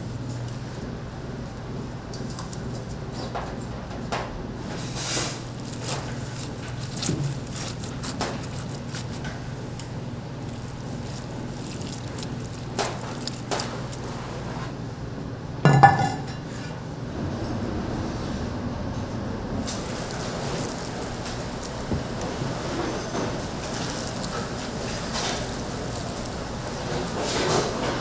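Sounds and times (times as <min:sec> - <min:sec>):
low kitchen hum: 0:00.0 - 0:28.0
dishes and utensils clinking: 0:15.7 - 0:16.6.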